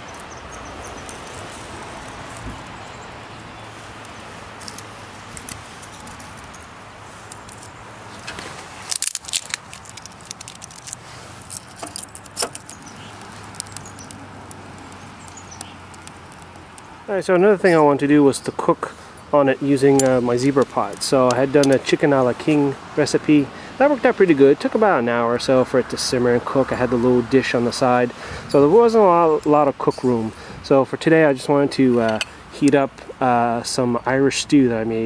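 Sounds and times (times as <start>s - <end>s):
kindling crackling and popping: 0.0s - 24.7s
steady background noise: 0.0s - 35.0s.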